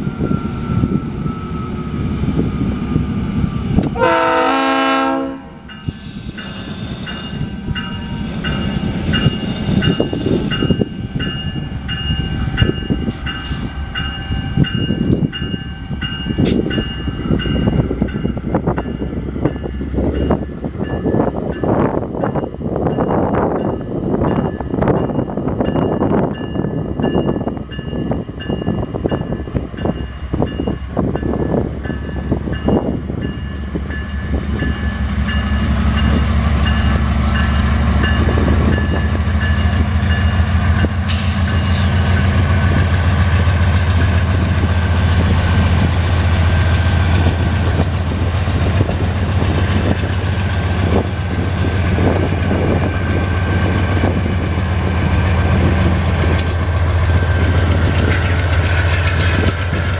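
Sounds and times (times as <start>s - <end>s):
locomotive engines droning: 0.0s - 59.9s
train wheels knocking: 42.2s - 59.9s.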